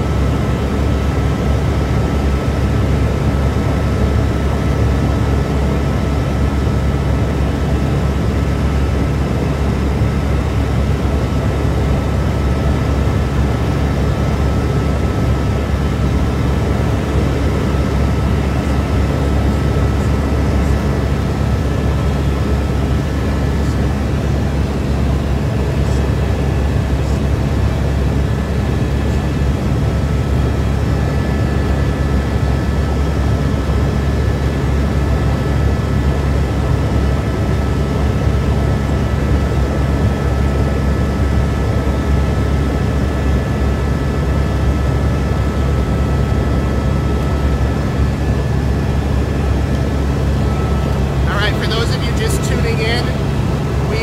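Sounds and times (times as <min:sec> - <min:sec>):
helicopter engine and rotor drone: 0:00.0 - 0:54.0
faint high whine: 0:47.0 - 0:54.0.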